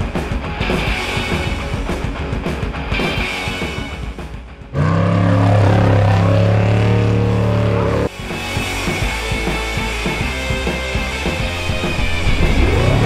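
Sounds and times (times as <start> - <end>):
rock music: 0.0 - 13.0
race vehicle engine running: 4.7 - 8.1.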